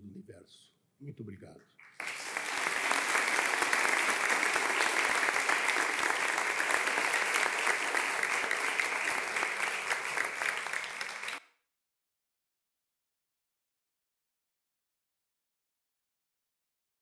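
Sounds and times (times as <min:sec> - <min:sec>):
audience applauding: 0:02.0 - 0:11.4.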